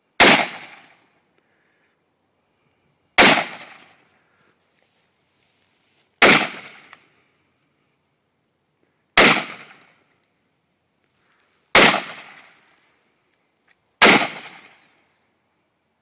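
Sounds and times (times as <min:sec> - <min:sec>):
rifle shots: 0:00.2 - 0:01.0, 0:03.2 - 0:03.9, 0:06.2 - 0:06.9, 0:09.2 - 0:09.9, 0:11.7 - 0:12.5, 0:14.0 - 0:14.8.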